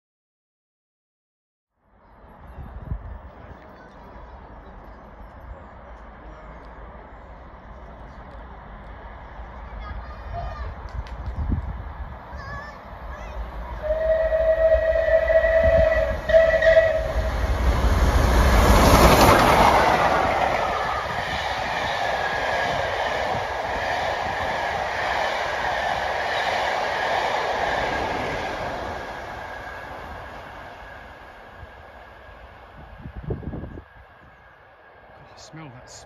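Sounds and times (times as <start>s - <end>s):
train passing in a loud rush: 1.8s - 36.0s
steam locomotive whistle: 13.8s - 17.7s.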